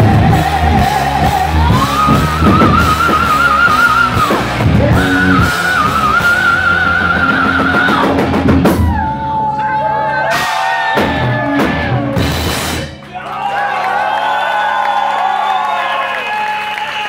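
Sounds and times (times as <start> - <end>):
heavy metal band playing live: 0.0 - 9.3, 10.2 - 13.1.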